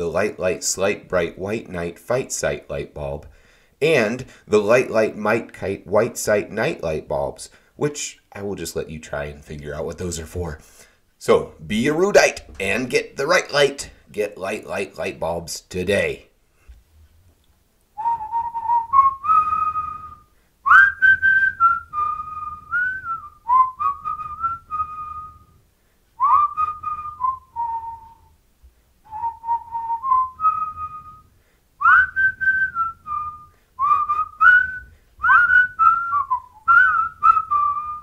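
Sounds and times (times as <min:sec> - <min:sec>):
person whistling a tune: 0:18.0 - 0:25.6, 0:26.2 - 0:28.4, 0:29.1 - 0:38.0.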